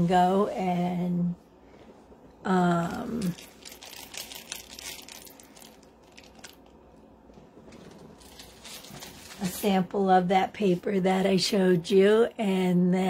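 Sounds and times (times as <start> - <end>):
person speaking: 2.5 - 3.5
packaging crinkling: 3.1 - 7.0, 7.6 - 9.6.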